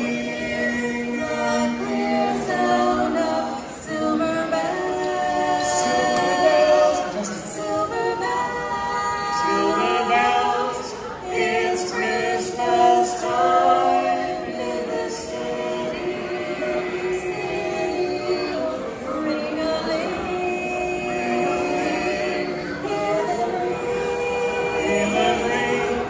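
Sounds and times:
choir singing a cappella: 0.0 - 26.0.

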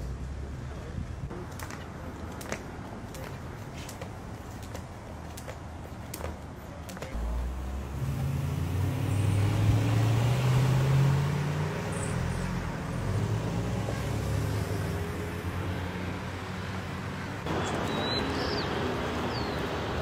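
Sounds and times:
street traffic noise: 0.0 - 20.0
car engine driving past: 7.2 - 16.3.

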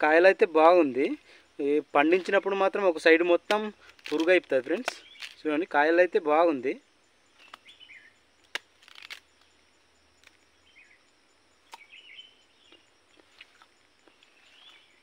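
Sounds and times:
faint bird chirps: 4.9 - 15.0.

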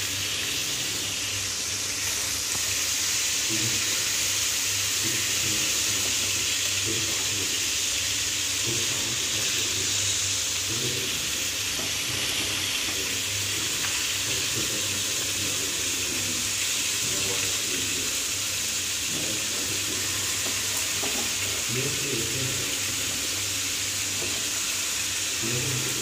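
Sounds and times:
chicken frying in hot oil: 0.0 - 26.0.

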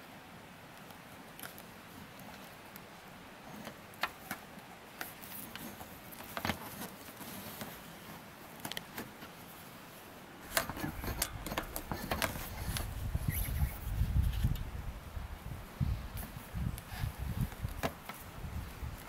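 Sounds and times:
cables clicking and scraping: 0.8 - 9.4, 10.4 - 14.8.

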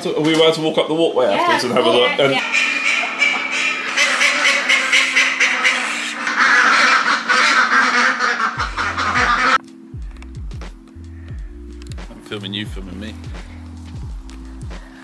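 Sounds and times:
ducks quacking: 1.9 - 9.6.

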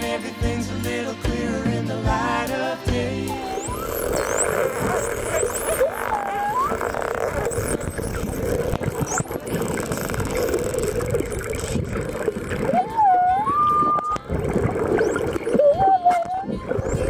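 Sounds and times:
sliding whistle-like tones: 3.2 - 17.0
underwater rushing rumble: 3.3 - 15.9.

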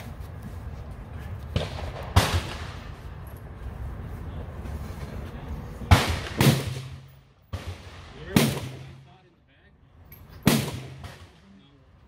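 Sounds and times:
gunshots with echo: 10.4 - 11.4.

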